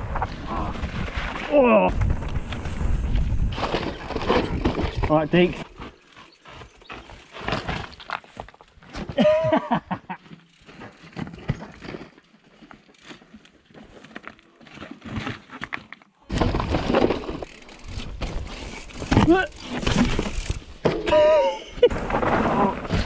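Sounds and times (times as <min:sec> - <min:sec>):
wind and tyre rush: 0:00.0 - 0:08.4
bike rattling over rocks: 0:00.0 - 0:09.0, 0:10.2 - 0:21.1, 0:21.9 - 0:23.0.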